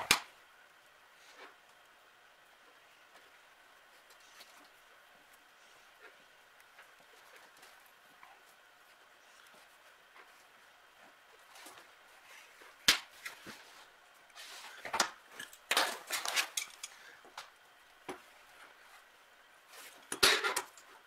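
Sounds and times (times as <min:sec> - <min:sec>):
wire rustling: 0:03.1 - 0:17.6
pliers clattering: 0:15.4 - 0:17.0.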